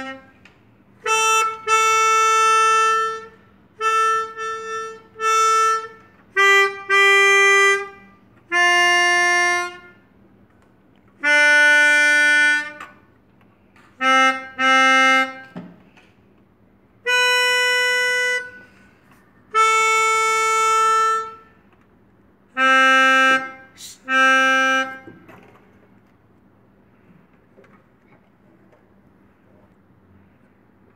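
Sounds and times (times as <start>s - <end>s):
melodica playing slow melody: 0.0s - 0.3s, 1.0s - 10.1s, 11.2s - 13.0s, 13.9s - 15.6s, 17.0s - 21.6s, 22.5s - 25.1s.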